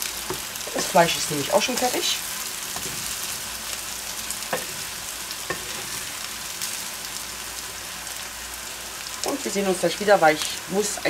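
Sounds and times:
meat sizzling in a frying pan: 0:00.0 - 0:11.0
wooden spatula scraping a pan: 0:02.7 - 0:03.4, 0:04.5 - 0:06.2.

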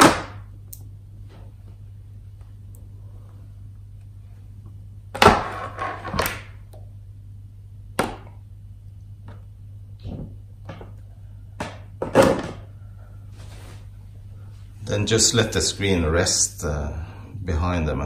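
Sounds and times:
knocks and clunks of handling: 0:11.6 - 0:12.7.

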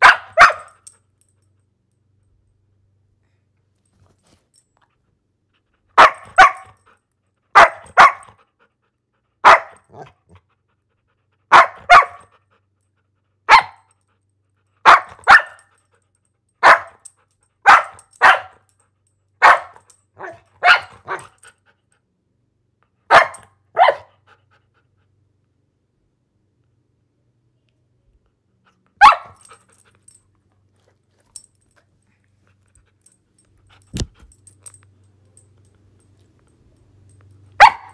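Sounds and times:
dog barking: 0:00.0 - 0:00.8, 0:06.0 - 0:06.8, 0:07.5 - 0:08.4, 0:09.4 - 0:10.2, 0:11.5 - 0:12.3, 0:13.5 - 0:13.9, 0:14.8 - 0:15.7, 0:16.6 - 0:17.0, 0:17.6 - 0:18.7, 0:19.4 - 0:21.4, 0:23.1 - 0:24.2, 0:29.0 - 0:29.6, 0:37.6 - 0:37.9.

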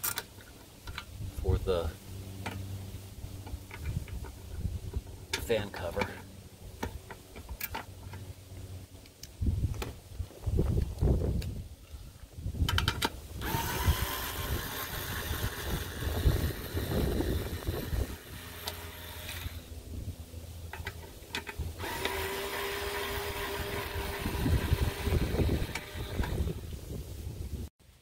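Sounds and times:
power driver motor whine: 0:13.4 - 0:19.8, 0:21.8 - 0:26.8.

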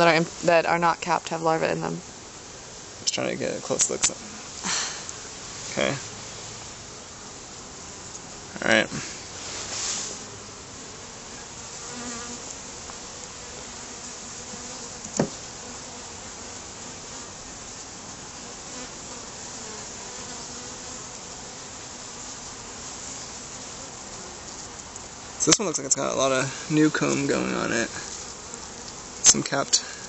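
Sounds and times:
bees buzzing: 0:00.0 - 0:30.0
sharp knock: 0:15.1 - 0:15.4.

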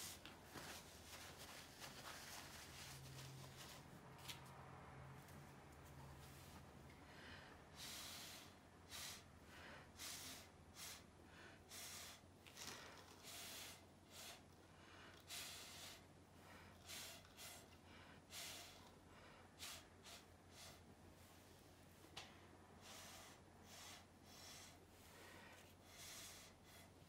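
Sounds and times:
breath puffs through a straw: 0:07.2 - 0:20.9, 0:22.8 - 0:27.0.

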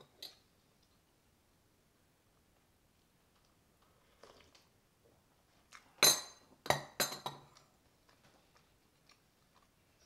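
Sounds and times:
ceramic cups clinking on saucers: 0:06.0 - 0:07.5.

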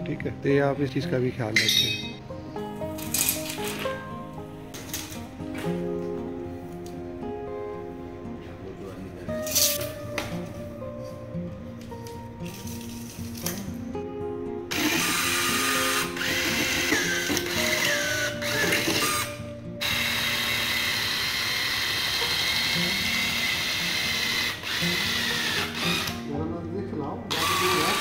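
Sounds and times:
background music: 0:00.0 - 0:28.0
cordless drill boring metal: 0:14.7 - 0:26.2, 0:27.3 - 0:28.0.

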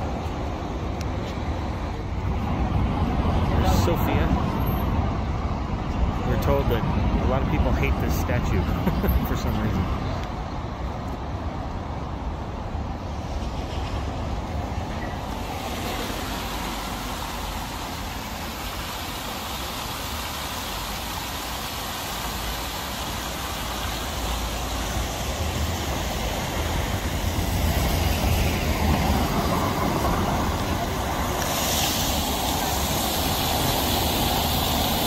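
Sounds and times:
distant street traffic: 0:00.0 - 0:35.0
fountain water splashing: 0:05.2 - 0:11.0, 0:15.2 - 0:35.0.

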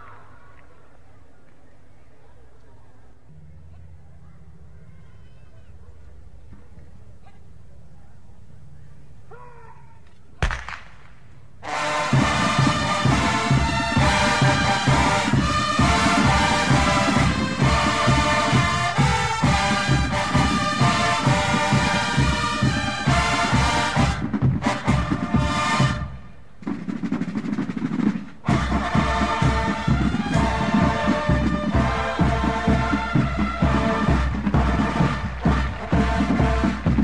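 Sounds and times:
marching drums: 0:10.4 - 0:37.0
brass bugles playing: 0:11.6 - 0:26.4, 0:28.4 - 0:37.0.

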